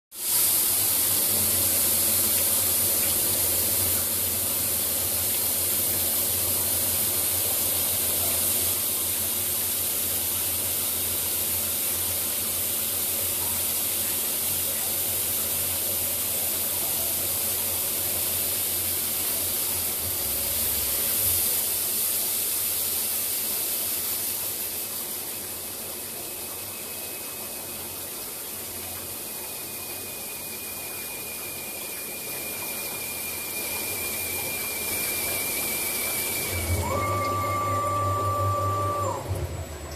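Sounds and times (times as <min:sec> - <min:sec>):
water spraying and hissing: 0:00.1 - 0:39.4
low machine hum: 0:19.6 - 0:21.9, 0:33.7 - 0:39.9.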